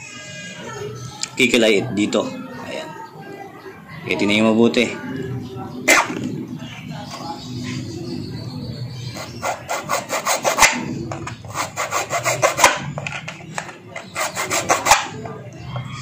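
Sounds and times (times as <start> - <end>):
file scraping steel blade: 9.1 - 15.4.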